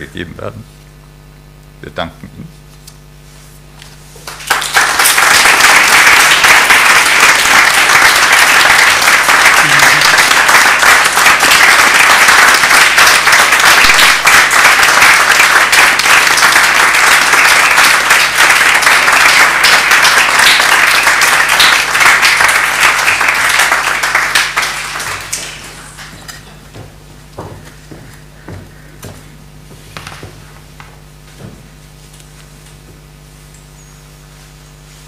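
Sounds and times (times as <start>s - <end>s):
audience applauding: 4.2s - 28.6s.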